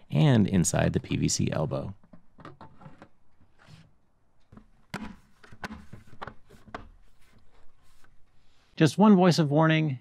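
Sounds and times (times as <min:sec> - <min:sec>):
plastic parts clicking and knocking: 0:02.0 - 0:03.8, 0:04.4 - 0:07.7.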